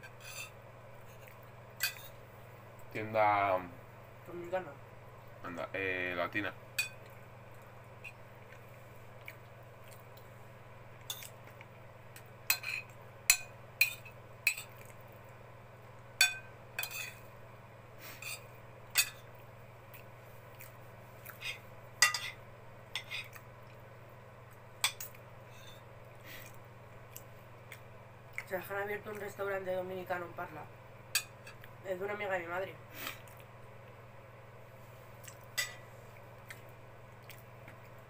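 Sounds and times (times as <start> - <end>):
faint low hum: 0.0 - 38.0
cutlery clinking on a plate: 16.2 - 17.2, 21.5 - 22.4.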